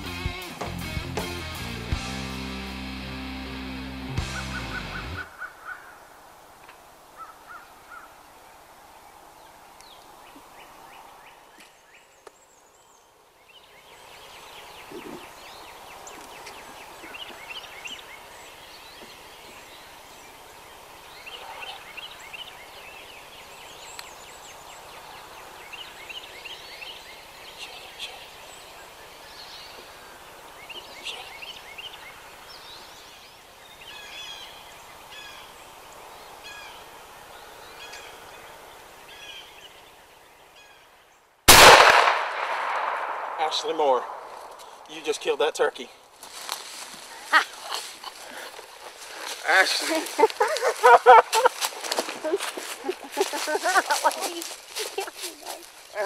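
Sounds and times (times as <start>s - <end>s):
birds calling: 0.0s - 42.1s, 43.0s - 56.0s
turkey gobbling: 4.2s - 6.0s, 49.9s - 51.6s
loud shotgun blast: 41.5s - 44.4s.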